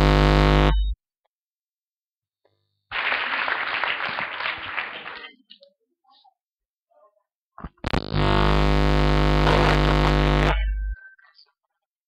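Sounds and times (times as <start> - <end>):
applause: 2.9 - 5.6.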